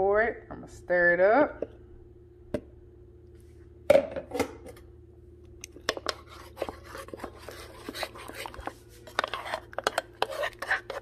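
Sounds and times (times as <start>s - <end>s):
spoon clinking and scraping pot: 5.8s - 11.0s.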